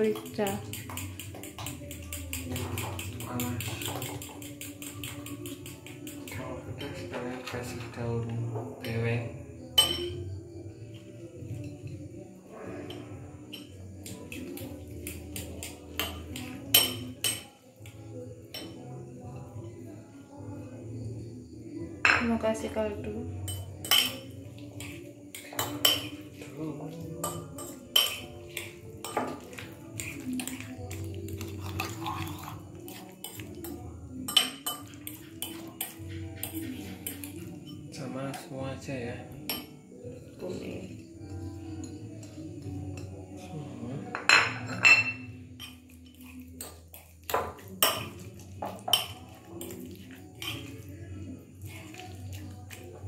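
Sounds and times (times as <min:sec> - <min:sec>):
fork beating wet filling: 0:00.0 - 0:06.6, 0:13.5 - 0:18.0, 0:23.9 - 0:37.6, 0:45.8 - 0:53.0
fork clinking on bowl rim: 0:00.1 - 0:07.0, 0:09.8 - 0:10.2, 0:12.9 - 0:18.8, 0:23.5 - 0:26.5, 0:27.2 - 0:37.9, 0:44.2 - 0:53.0.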